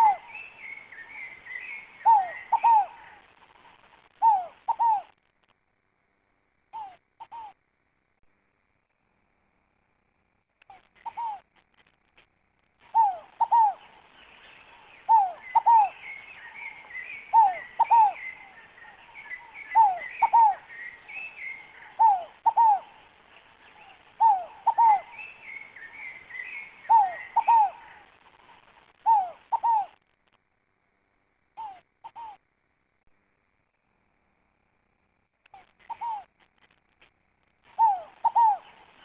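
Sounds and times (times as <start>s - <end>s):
dove cooing: 0.0s - 5.2s, 6.7s - 7.6s, 10.7s - 11.5s, 12.8s - 30.0s, 31.6s - 32.4s, 35.5s - 36.4s, 37.6s - 39.0s
small birds twittering: 0.0s - 5.2s, 10.6s - 11.5s, 12.8s - 30.1s, 31.6s - 32.4s, 35.4s - 36.8s, 37.6s - 39.0s.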